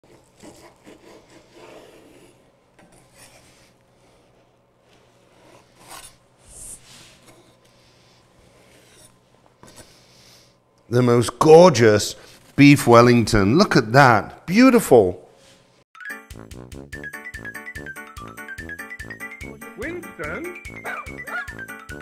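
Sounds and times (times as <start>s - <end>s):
knife sawing through crisp pastry: 0.0s - 10.5s.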